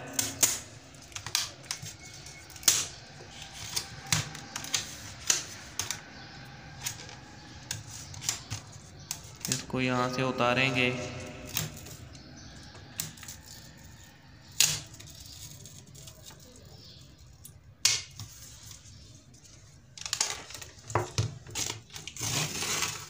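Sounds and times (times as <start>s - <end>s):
paper sheet peeling: 21.5s - 23.0s.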